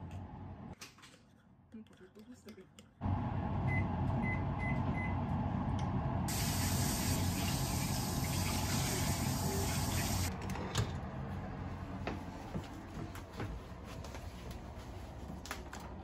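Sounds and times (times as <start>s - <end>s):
microwave oven beeps: 3.6s - 5.3s.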